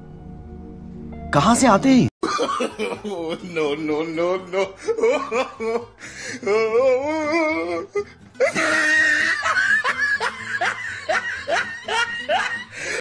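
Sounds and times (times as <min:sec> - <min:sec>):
loud laughter: 0:02.2 - 0:05.9, 0:08.4 - 0:13.0.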